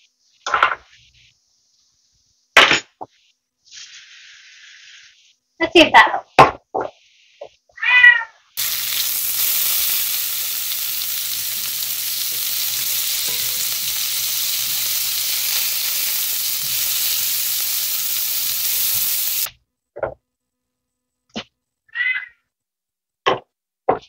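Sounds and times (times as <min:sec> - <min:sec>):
food sizzling in pan: 0:08.6 - 0:19.5.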